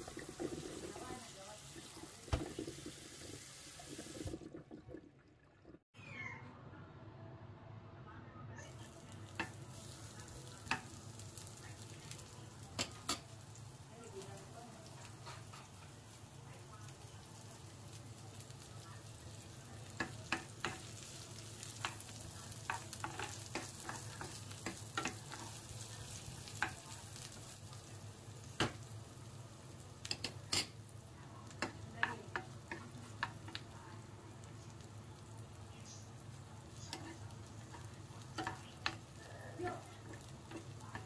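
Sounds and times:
onion sizzling in oil: 0.0 - 4.5, 8.8 - 41.0
metal spoon stirring in pan: 19.8 - 27.6, 30.0 - 34.0, 36.7 - 41.0.

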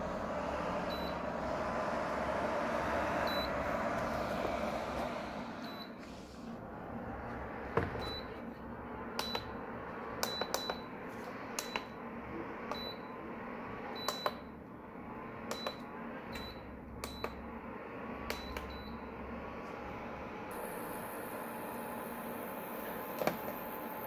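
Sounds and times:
cooling fan running: 0.0 - 24.0
button clicks with high beeps: 10.2 - 10.9.

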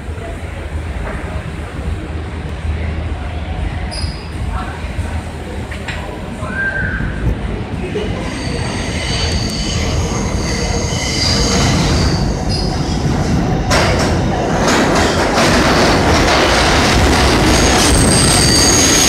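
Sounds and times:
train rumble: 0.0 - 19.0
train wheels squealing on rails: 3.9 - 4.4, 8.0 - 13.3, 17.2 - 19.0.

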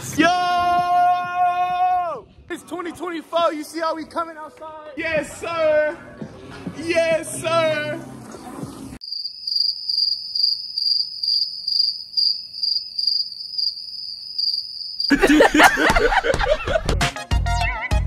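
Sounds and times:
cricket chirping: 9.0 - 15.2.

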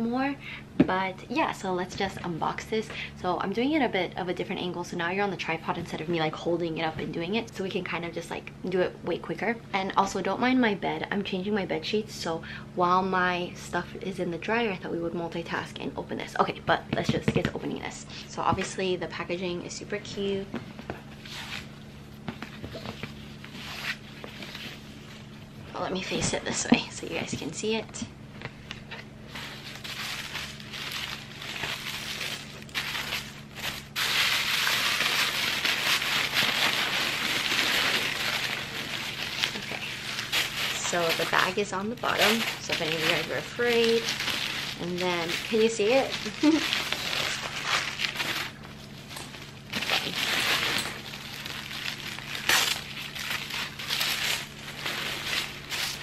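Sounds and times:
paper packaging crinkling and rustling: 29.3 - 56.0.

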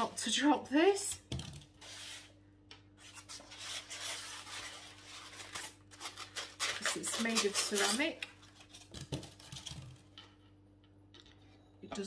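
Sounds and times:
packaging rustling: 3.0 - 9.7.

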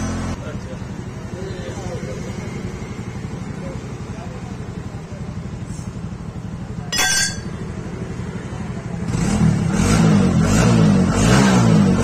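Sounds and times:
metal spanner clinking: 6.9 - 7.8.

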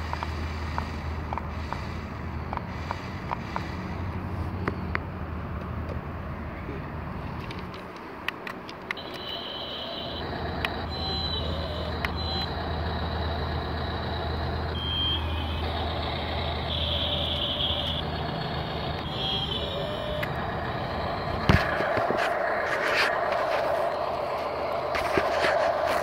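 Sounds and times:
short electronic beeps: 9.0 - 12.6, 14.8 - 16.0, 19.0 - 21.2
toy vehicle motor hum: 9.0 - 21.9
toy excavator whirring: 9.0 - 26.0.

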